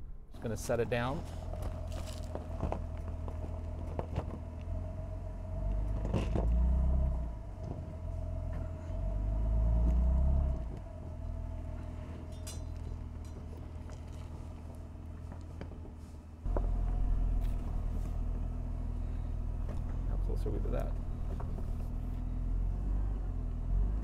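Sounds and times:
truck engine rumble: 0.0s - 24.0s
stones crackling under tyres: 0.6s - 4.9s, 11.7s - 22.3s.

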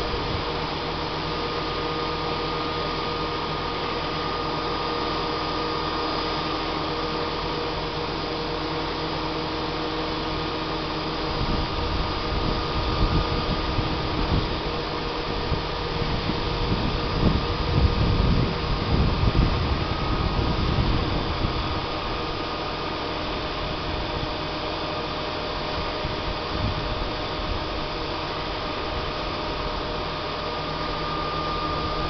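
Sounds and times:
low rumbling gusts: 0.0s - 1.0s, 11.0s - 24.4s, 25.7s - 30.1s
truck engine and hydraulic pump: 0.0s - 32.0s.

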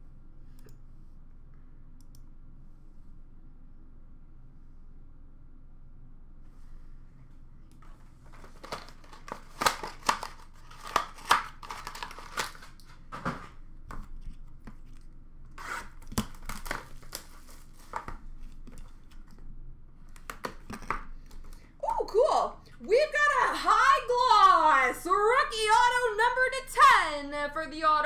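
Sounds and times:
plastic wrap rustling and tearing: 8.2s - 19.3s.

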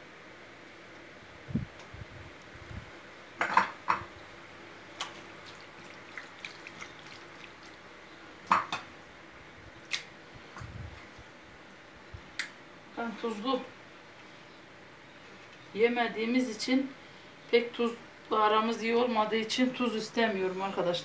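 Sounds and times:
wet squelches of hands on meat: 4.9s - 7.9s.

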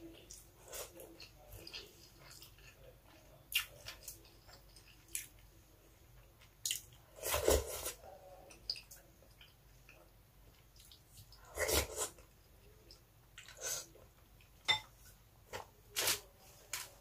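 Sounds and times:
person chewing and lip smacking: 8.5s - 11.4s.

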